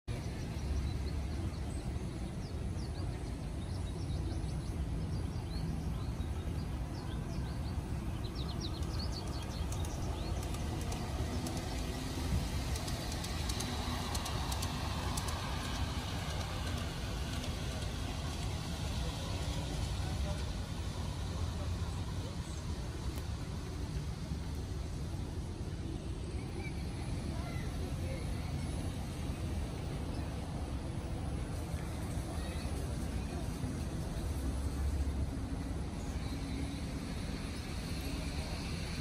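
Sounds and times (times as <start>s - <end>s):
birds chirping: 0.1s - 24.0s
steady low rumble: 0.1s - 39.0s
model train wheels clicking: 0.2s - 39.0s.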